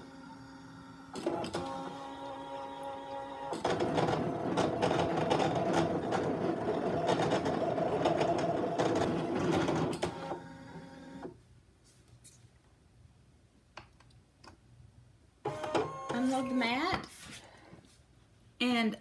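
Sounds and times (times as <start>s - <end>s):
cutting machine motors whirring: 0.0s - 11.3s.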